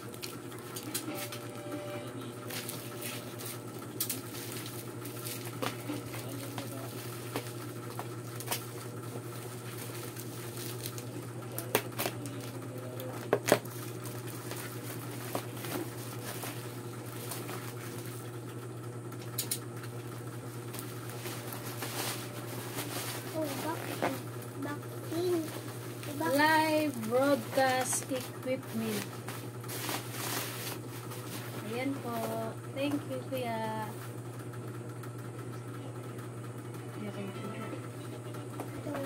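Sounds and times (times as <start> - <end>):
steady low hum: 0.0 - 39.0
bubble wrap crackling: 2.4 - 18.2, 20.6 - 24.5, 25.1 - 32.4.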